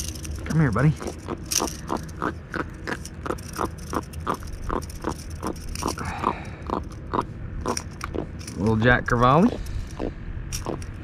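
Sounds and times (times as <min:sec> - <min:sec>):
fish grunting croaks: 0:01.0 - 0:08.3.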